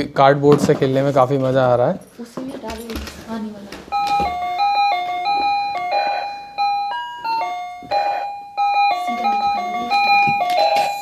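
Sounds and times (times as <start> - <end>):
toy playing beeping electronic tune: 3.9 - 11.0.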